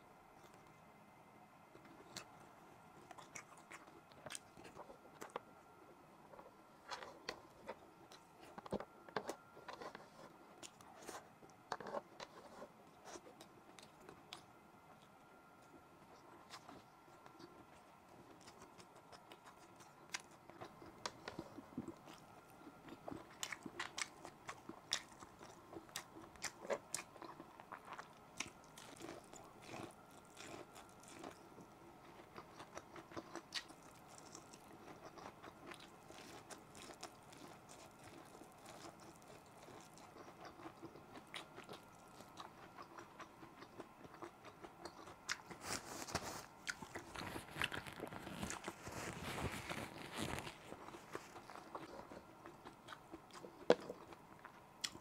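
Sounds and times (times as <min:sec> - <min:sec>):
person chewing food: 0:01.8 - 0:02.4, 0:03.0 - 0:05.6, 0:06.3 - 0:55.0
paper tissue rustling: 0:47.2 - 0:51.4.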